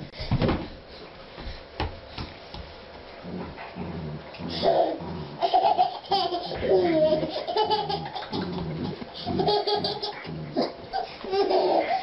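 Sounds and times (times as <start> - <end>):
dog making low vocal sounds: 3.2 - 5.6, 6.4 - 11.2.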